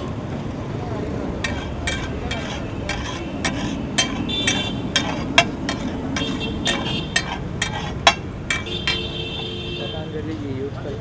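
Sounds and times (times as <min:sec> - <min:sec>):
metal spatula clanking on griddle: 0:01.4 - 0:09.2.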